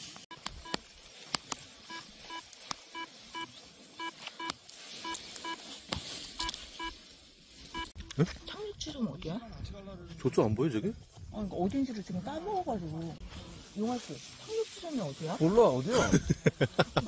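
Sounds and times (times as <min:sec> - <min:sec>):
short electronic beeps: 0:00.3 - 0:00.8, 0:01.8 - 0:05.6, 0:06.4 - 0:07.0, 0:07.7 - 0:08.0.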